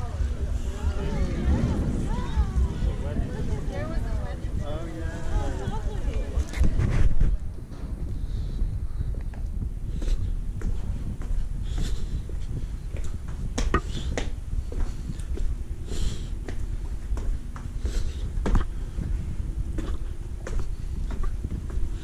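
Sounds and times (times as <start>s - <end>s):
low rumble: 0.0s - 22.0s.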